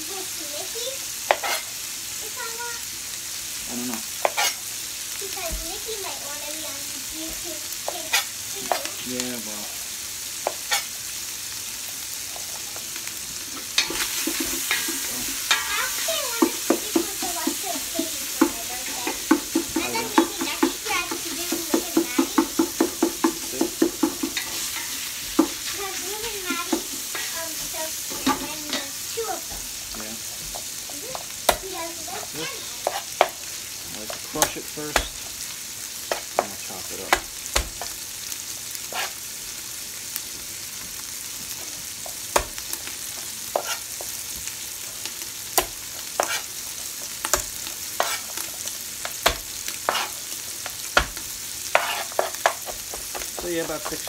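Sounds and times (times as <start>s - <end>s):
meat sizzling in a pot: 0.0s - 54.0s
spatula scraping a pot: 1.3s - 1.7s, 4.2s - 4.6s, 13.6s - 29.6s, 32.8s - 33.4s, 38.8s - 39.2s, 43.5s - 43.9s, 46.0s - 46.6s, 47.9s - 48.7s, 49.7s - 50.3s, 51.7s - 54.0s
knife chopping on plastic board: 43.6s - 43.8s.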